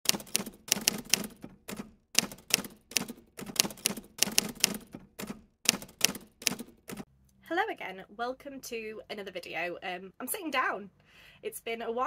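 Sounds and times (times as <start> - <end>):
typewriter-like key clacks: 0.1 - 7.0.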